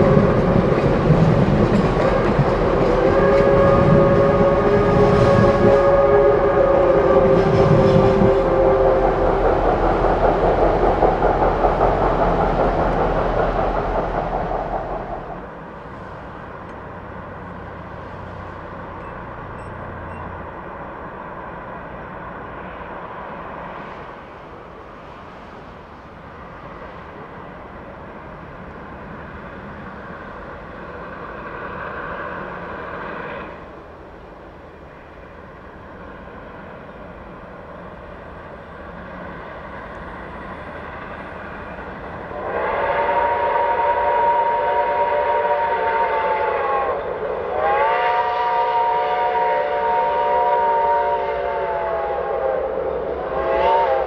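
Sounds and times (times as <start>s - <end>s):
distant train running: 0.0s - 54.0s
loud train rumble: 0.0s - 54.0s
steam locomotive whistle: 2.1s - 9.9s, 42.3s - 54.0s.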